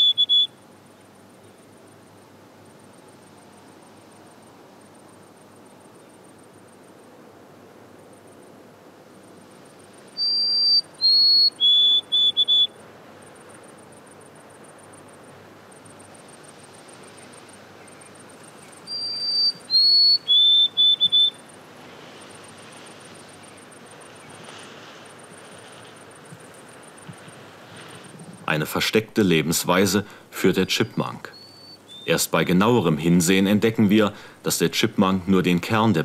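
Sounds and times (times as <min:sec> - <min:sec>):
sparrow whistling song: 0:00.0 - 0:00.6, 0:10.1 - 0:12.8, 0:17.2 - 0:21.6, 0:31.3 - 0:32.2.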